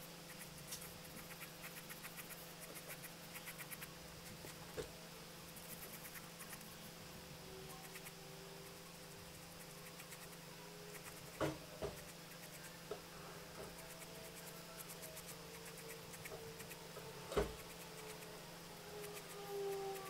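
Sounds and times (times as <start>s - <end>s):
faint sliding tones: 6.5s - 20.0s.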